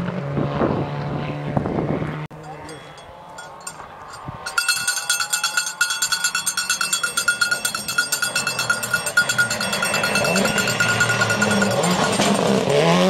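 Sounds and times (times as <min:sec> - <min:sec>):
cowbell clanging: 0:02.4 - 0:13.0
rally car engine: 0:06.9 - 0:13.0.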